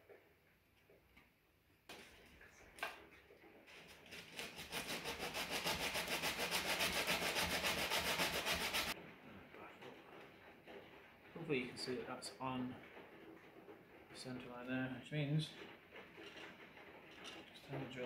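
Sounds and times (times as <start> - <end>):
sandpaper rasping on wood: 4.1 - 9.0.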